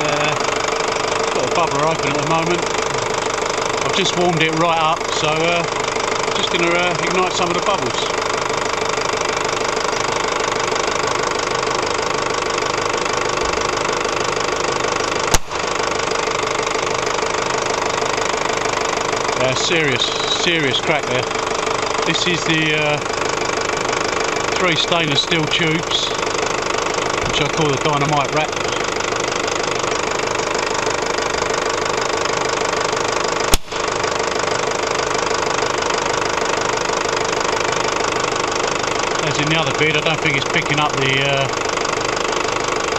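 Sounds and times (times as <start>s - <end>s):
diesel engine idling: 0.0s - 42.9s
gas ignition crack: 15.1s - 16.0s, 33.3s - 34.4s
sharp crack of gas igniting: 15.3s - 15.7s, 33.5s - 34.0s.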